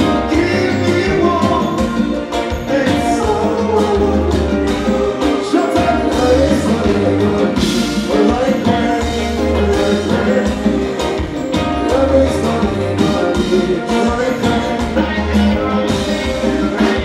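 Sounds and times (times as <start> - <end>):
live band playing: 0.0 - 17.0
man singing into microphone: 0.0 - 17.0.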